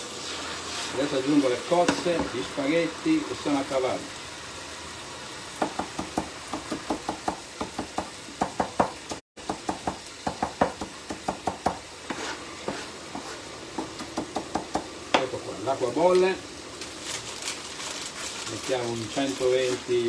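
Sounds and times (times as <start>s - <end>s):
frying pan sizzling: 0.0s - 20.0s
knife chopping on wooden board: 5.6s - 15.3s.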